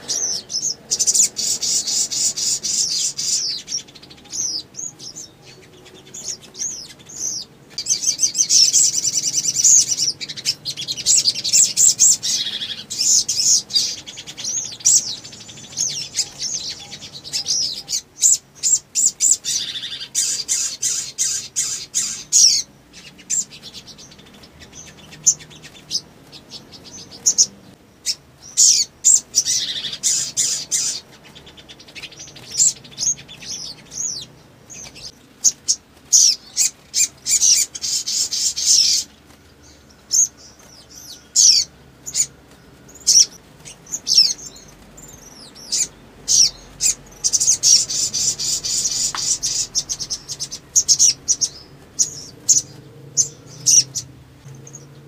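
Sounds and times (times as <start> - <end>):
bird trilling and chattering: 0.0 - 55.0.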